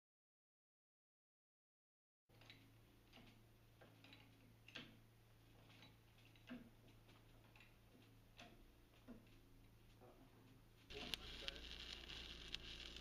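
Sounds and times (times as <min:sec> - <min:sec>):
faint clicks: 0:10.9 - 0:13.0.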